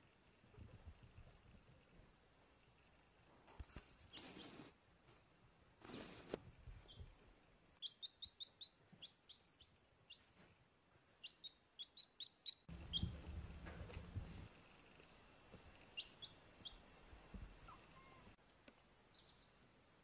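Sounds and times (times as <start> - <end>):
rustling: 3.3 - 6.9
baby chick peeping: 4.1 - 4.7, 6.7 - 7.2, 7.8 - 18.4, 19.2 - 19.6.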